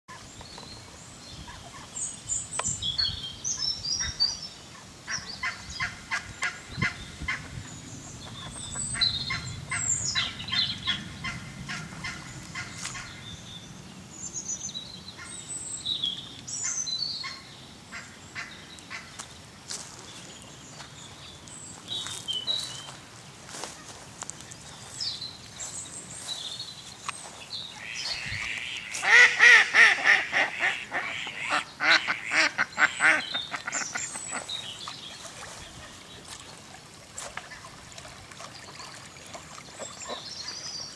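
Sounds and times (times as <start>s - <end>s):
birds chirping: 0.1s - 40.9s
waterfowl honking: 8.3s - 13.2s, 27.8s - 34.6s
rapid rattling bird calls: 27.2s - 35.6s.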